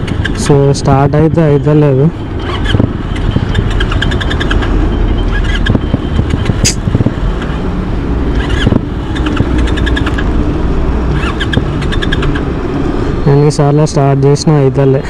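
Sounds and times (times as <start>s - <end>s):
road traffic rumble: 0.0s - 15.0s
sharp click: 5.4s - 7.5s.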